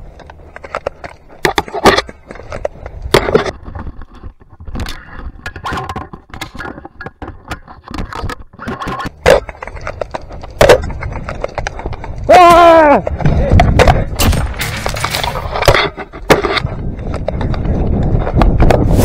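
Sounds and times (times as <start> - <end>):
gear rattling: 0.0 - 19.0
sharp cracks: 13.7 - 16.5.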